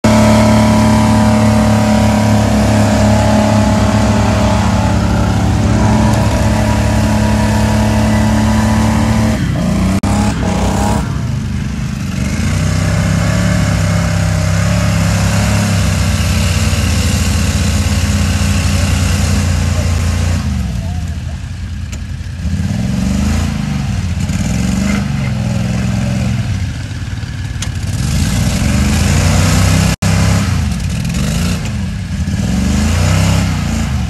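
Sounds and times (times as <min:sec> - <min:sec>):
golf cart engines running hard: 0:00.0 - 0:34.0.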